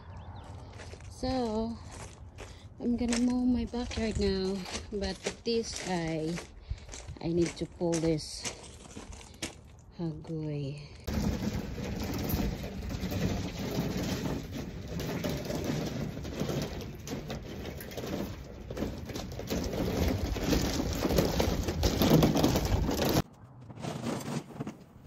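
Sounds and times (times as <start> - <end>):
footsteps crunching on gravel: 0.4 - 11.5
mower wheels rattling over gravel: 11.0 - 24.8.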